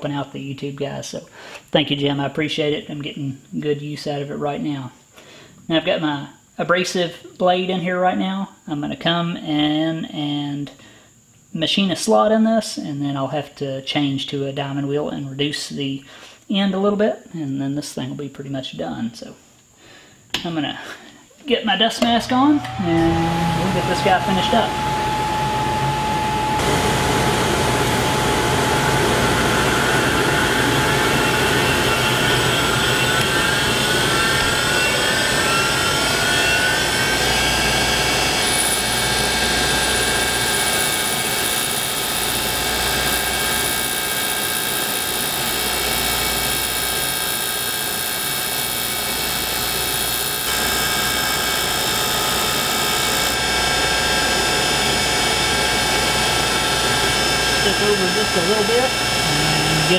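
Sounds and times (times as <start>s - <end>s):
grinder wheel grinding ceramic: 22.2s - 59.9s.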